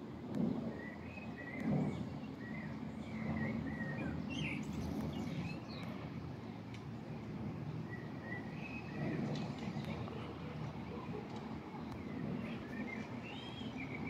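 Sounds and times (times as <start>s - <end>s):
small birds chirping: 0.7s - 6.2s, 11.7s - 14.0s.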